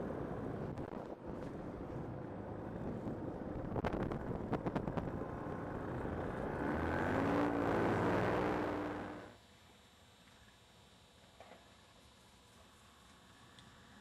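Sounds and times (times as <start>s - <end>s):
wind noise: 0.0s - 6.6s
paramotor engine running: 3.9s - 9.4s.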